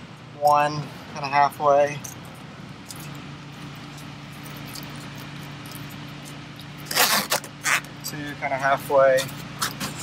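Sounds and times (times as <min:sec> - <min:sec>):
steady low hum: 0:00.0 - 0:10.0
zipper pulled: 0:06.8 - 0:07.9.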